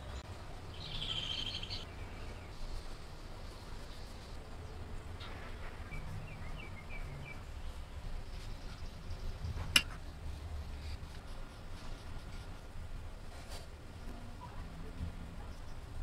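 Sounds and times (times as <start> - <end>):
faint bird chirps: 0.0 - 9.5
low room rumble: 0.0 - 16.0.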